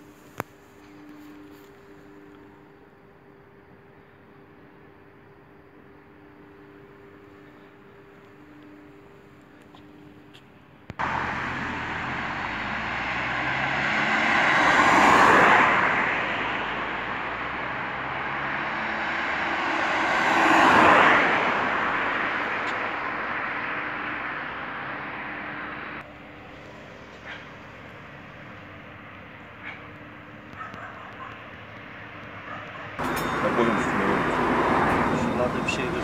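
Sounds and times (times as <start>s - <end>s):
steady road roar: 0.0s - 36.0s
vehicles passing by: 0.0s - 36.0s.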